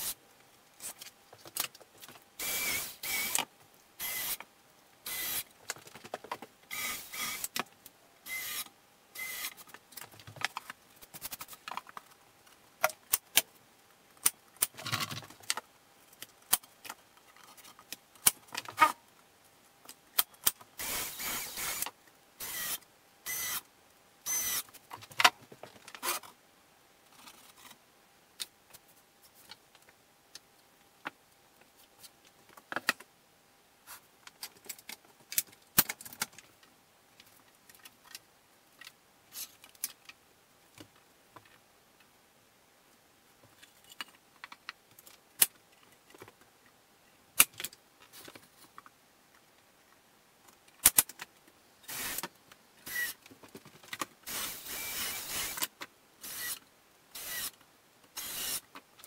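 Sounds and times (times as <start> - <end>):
cordless drill running: 2.4 - 3.4, 4.0 - 4.4, 5.1 - 5.4, 6.7 - 7.4, 8.3 - 8.6, 9.2 - 9.5, 20.8 - 21.8, 22.4 - 23.6, 24.3 - 24.6, 51.9 - 52.2, 52.9 - 53.1, 54.3 - 55.6, 56.2 - 56.6, 57.2 - 57.5, 58.2 - 58.6.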